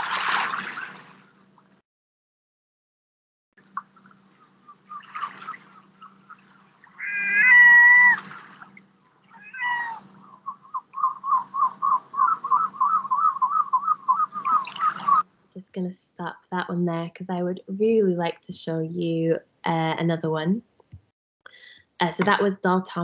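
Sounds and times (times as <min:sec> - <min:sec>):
steady low hum: 0:03.6 - 0:20.8
gulls calling: 0:03.8 - 0:15.2.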